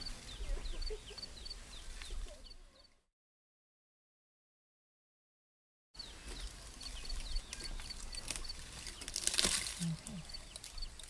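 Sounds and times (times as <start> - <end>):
bird chirping: 0.0 - 3.0, 6.0 - 11.0
branches crackling and snapping: 6.3 - 11.0.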